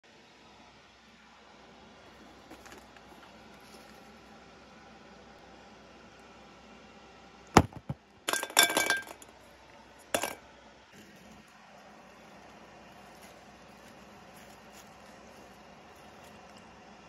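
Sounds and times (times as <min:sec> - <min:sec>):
ceramic jar clinking: 0:08.3 - 0:09.2, 0:10.1 - 0:10.4.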